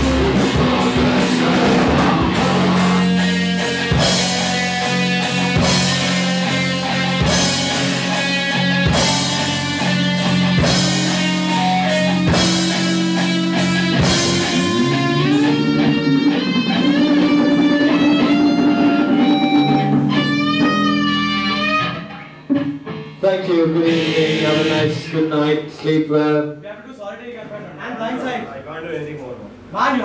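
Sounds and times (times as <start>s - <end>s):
rock band playing live: 0.0s - 25.9s
electric guitars bending notes: 0.0s - 26.1s
cymbal crashes: 22.9s - 25.8s.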